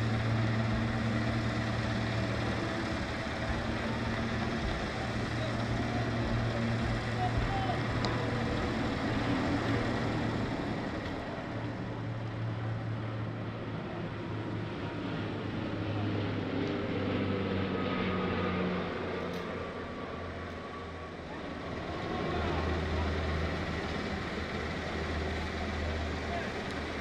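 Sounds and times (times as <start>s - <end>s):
steady low hum: 0.0s - 16.3s.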